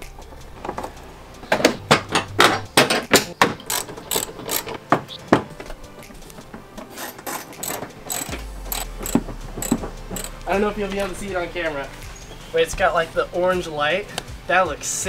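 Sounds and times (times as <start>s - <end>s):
hand tool clicks and knocks: 1.6s - 5.8s, 6.4s - 10.4s.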